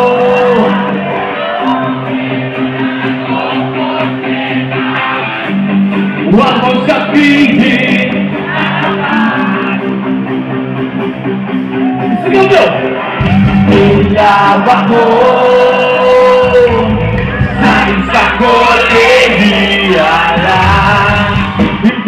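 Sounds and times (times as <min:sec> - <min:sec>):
man singing: 0:00.0 - 0:02.0, 0:06.3 - 0:09.8, 0:13.4 - 0:22.0
live rock band: 0:00.0 - 0:22.0.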